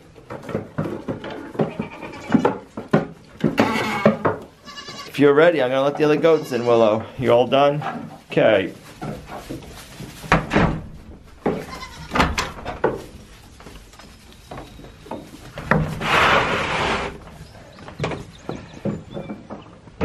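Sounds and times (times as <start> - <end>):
goats bleating: 1.5 - 2.5, 3.6 - 5.2, 6.0 - 7.1, 11.6 - 12.2.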